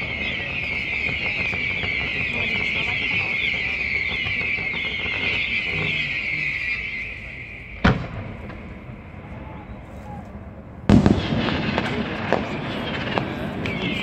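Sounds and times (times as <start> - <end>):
crackling pops: 0.0 - 8.8, 10.1 - 14.0
fireworks crackling hiss: 0.0 - 10.2, 10.9 - 14.0
fireworks bangs: 0.0 - 14.0.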